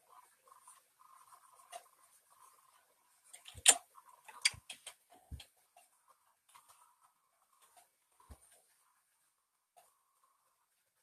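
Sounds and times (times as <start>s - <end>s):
stylus or mouse clicks and taps: 3.4s - 5.5s.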